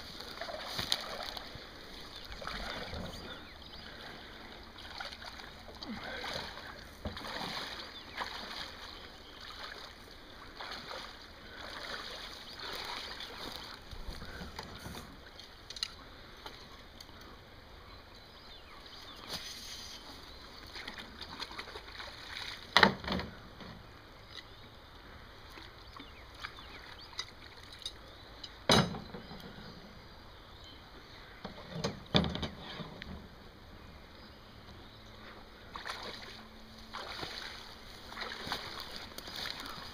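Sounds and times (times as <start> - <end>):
waders sloshing through water: 0.0 - 15.6, 18.8 - 22.8, 25.4 - 27.8, 35.2 - 39.9.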